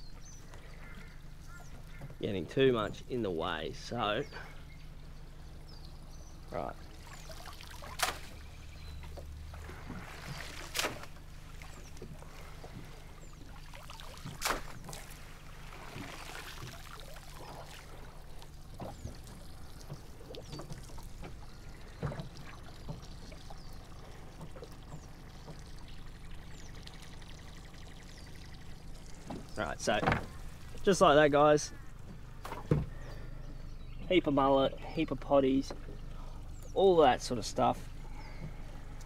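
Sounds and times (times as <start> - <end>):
outboard motor idling: 0.0 - 39.0
water pouring and dripping: 9.1 - 32.2.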